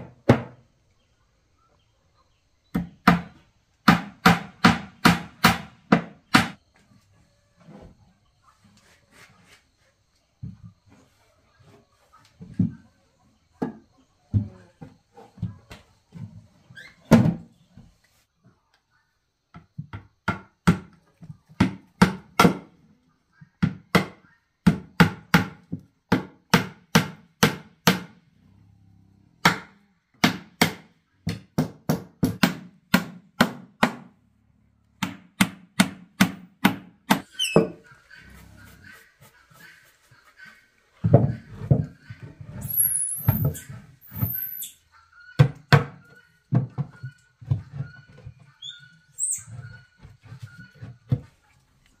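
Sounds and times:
hammer driving nails into wood: 35.0s - 37.3s.

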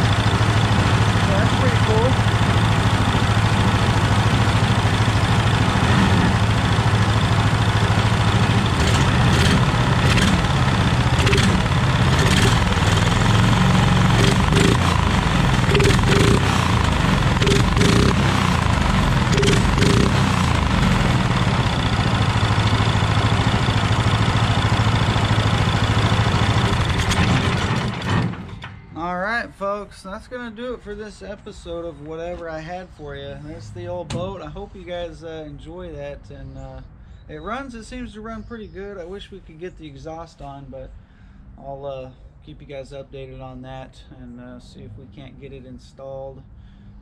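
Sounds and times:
single-cylinder engine running: 0.0s - 28.6s.

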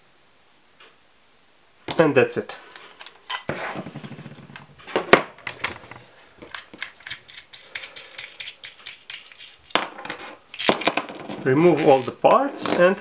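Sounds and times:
metal washers clicking and clinking: 6.4s - 13.0s.

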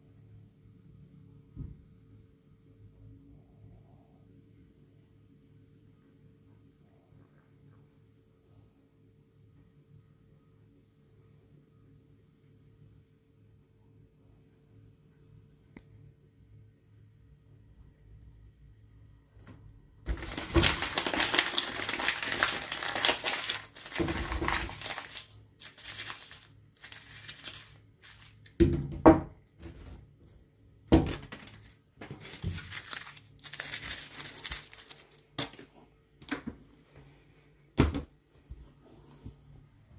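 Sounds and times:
thunk: 1.6s - 1.8s
paper crumpling: 20.1s - 28.6s, 31.1s - 35.7s.

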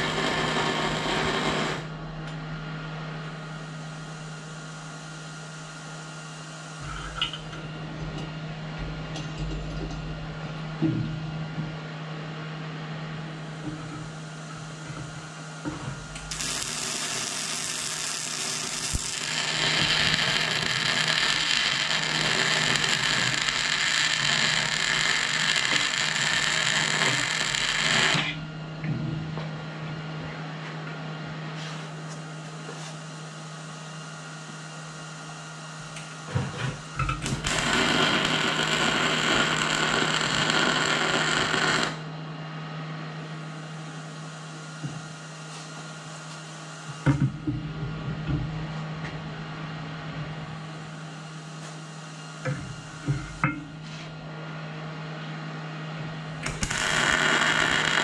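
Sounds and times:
welding arc crackling: 0.0s - 1.9s, 16.2s - 28.4s, 37.2s - 42.0s, 56.4s - 58.0s
steady low hum: 0.0s - 58.0s.

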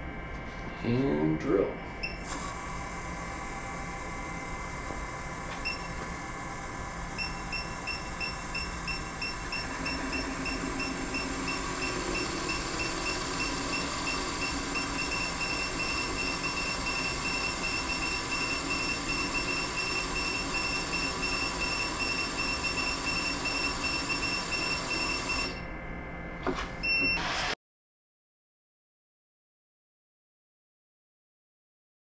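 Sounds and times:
drill press boring wood: 2.2s - 25.6s, 26.5s - 27.6s.

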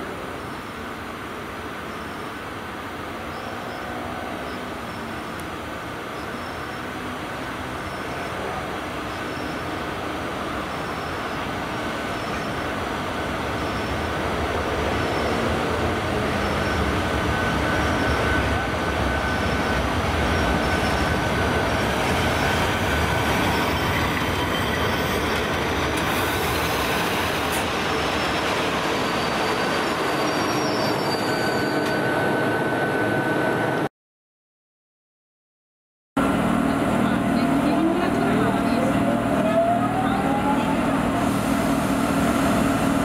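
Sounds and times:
train wheels rumbling on rails: 4.8s - 32.6s
thin high squeal: 29.0s - 32.1s.

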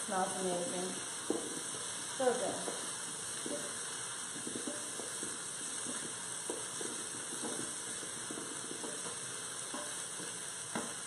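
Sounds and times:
potatoes sizzling in oil: 0.0s - 11.0s.

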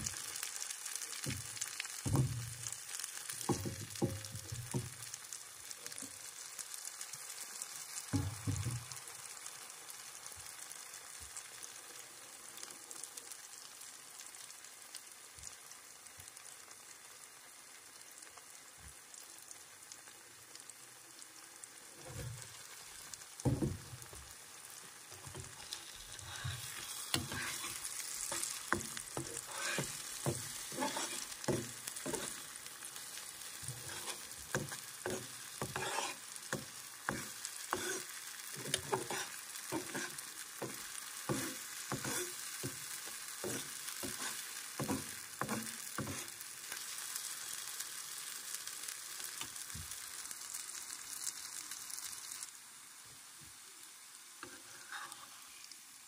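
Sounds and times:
food sizzling in frying pan: 0.0s - 56.0s
spatula scraping pan: 25.3s - 46.4s, 54.4s - 55.8s.

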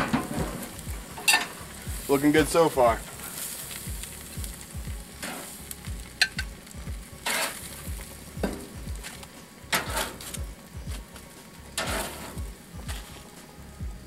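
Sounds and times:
food sizzling on a grill: 0.0s - 14.0s.

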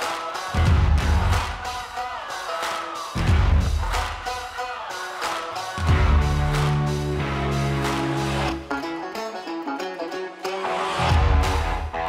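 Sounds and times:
held bass note and chord: 5.8s - 8.7s, 11.0s - 12.0s.

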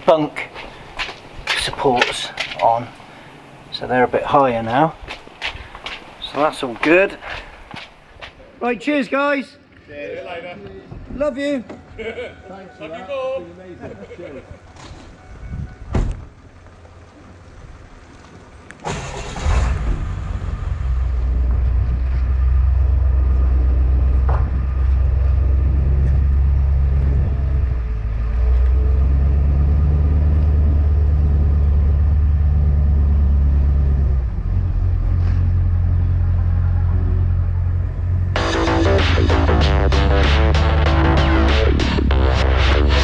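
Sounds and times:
engine deep rumble: 13.9s - 43.0s
pickup engine starting: 16.2s - 36.9s.

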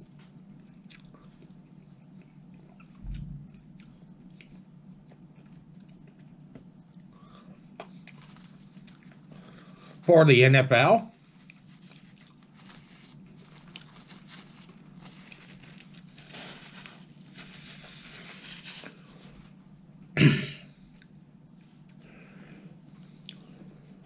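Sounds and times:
paper napkin rustling and crinkling: 11.1s - 19.6s
short loud throat sound: 20.2s - 20.7s.

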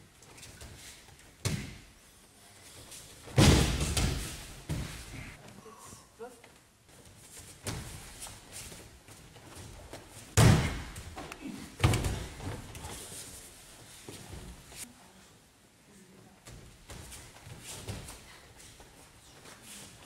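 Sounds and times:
body thudding on gym mats: 3.2s - 5.4s, 7.2s - 13.3s.

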